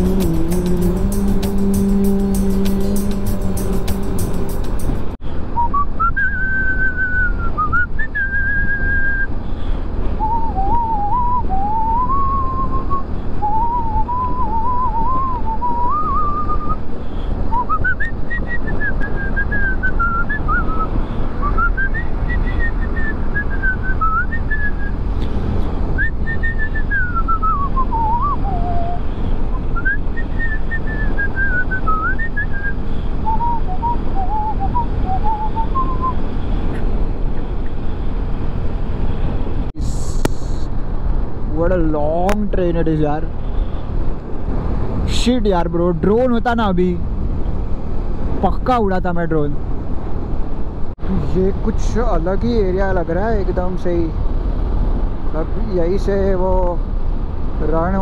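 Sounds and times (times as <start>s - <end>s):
man whistling a tune: 0.0s - 4.8s, 5.6s - 9.3s, 10.2s - 16.8s, 17.5s - 25.0s, 26.0s - 36.2s
motorcycle engine and road noise: 0.0s - 58.0s
wind rush: 3.1s - 46.1s.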